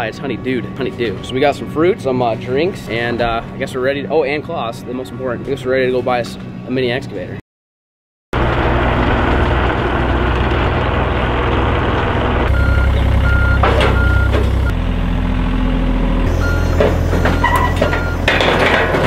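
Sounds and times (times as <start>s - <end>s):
excavator diesel engine under load: 8.4s - 19.0s
travel alarm beeping: 12.5s - 14.8s, 16.3s - 18.3s
loud clattering: 16.6s - 19.0s.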